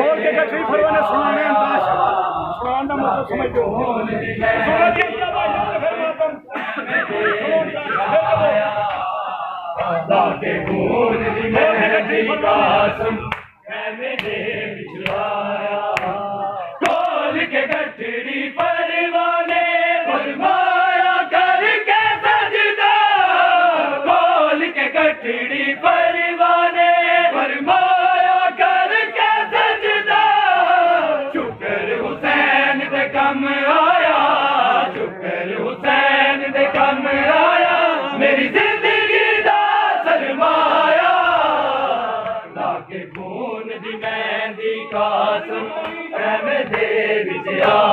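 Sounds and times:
men chanting a lament: 0:00.0 - 0:47.9
chest-beating slaps: 0:13.3 - 0:16.2, 0:16.8 - 0:17.9, 0:42.2 - 0:43.4, 0:44.9 - 0:47.9.

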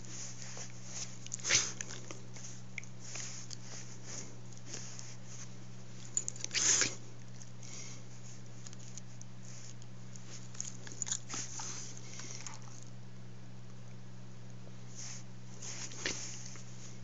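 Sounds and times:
steady low hum: 0:00.0 - 0:17.0
dog mouthing and nipping: 0:00.4 - 0:05.0.

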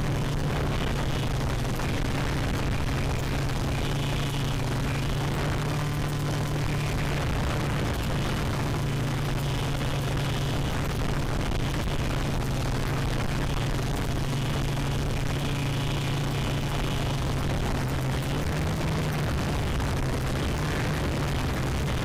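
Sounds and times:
quadcopter propellers buzzing: 0:00.0 - 0:22.0.

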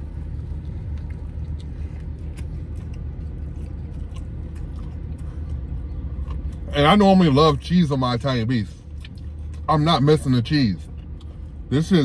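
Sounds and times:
man chewing food: 0:00.0 - 0:06.7, 0:08.9 - 0:09.7
low hum in car cabin: 0:00.0 - 0:12.0.

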